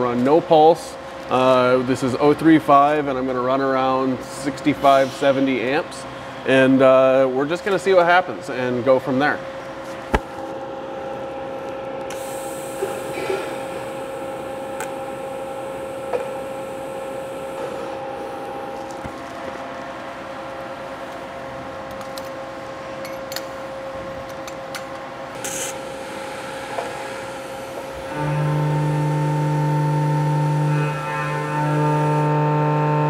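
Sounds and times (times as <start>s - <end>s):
welder humming and hissing: 12.1s - 19.1s, 25.4s - 33.0s.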